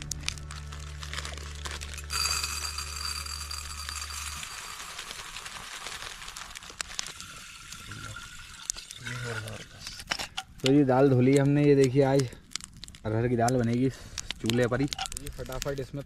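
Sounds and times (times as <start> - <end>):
background music: 0.0 - 4.8
water pouring over lentils: 0.0 - 16.0
small clinks: 2.0 - 5.3, 12.2 - 15.8.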